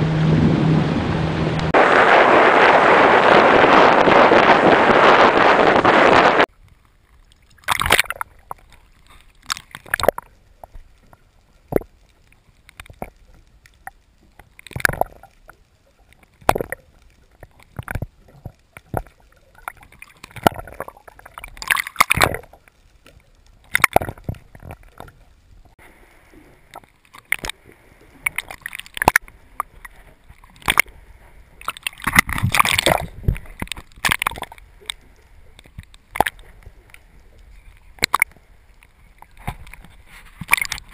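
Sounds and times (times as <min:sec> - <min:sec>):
muffled water sloshing and gurgling: 0:00.0 - 0:40.9
knocks and splashes: 0:07.6 - 0:10.3, 0:14.4 - 0:15.3, 0:16.2 - 0:22.6, 0:23.6 - 0:25.1, 0:28.2 - 0:30.9, 0:31.6 - 0:35.0, 0:35.6 - 0:36.5, 0:37.9 - 0:38.4, 0:39.2 - 0:40.9.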